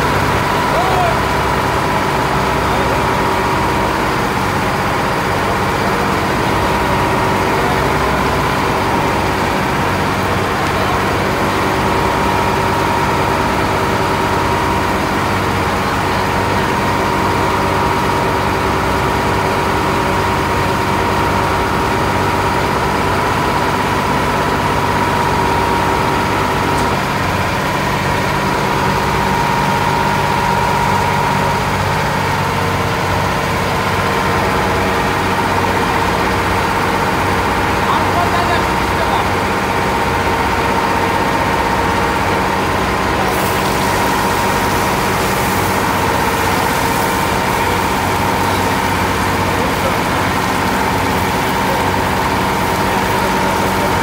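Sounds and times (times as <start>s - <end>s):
boat diesel engine droning: 0.0s - 54.0s
oil sizzling in a wok: 43.2s - 49.2s, 50.4s - 54.0s.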